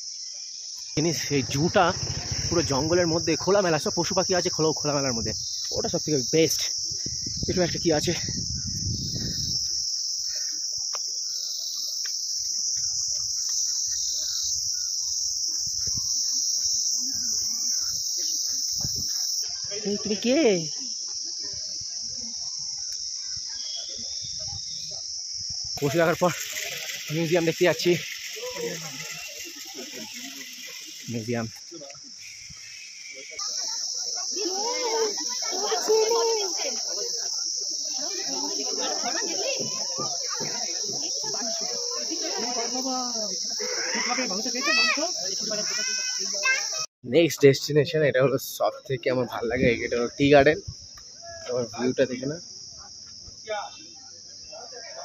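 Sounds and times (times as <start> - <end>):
high-pitched insect drone: 0.0 - 46.9
low rustling: 1.0 - 3.5
indistinct voices: 1.0 - 5.9, 25.8 - 46.7.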